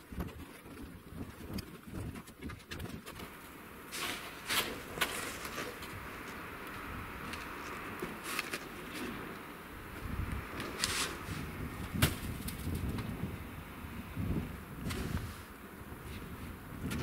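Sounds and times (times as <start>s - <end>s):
snow shovel scraping snow: 3.9s - 6.0s, 10.6s - 11.6s, 14.8s - 16.3s.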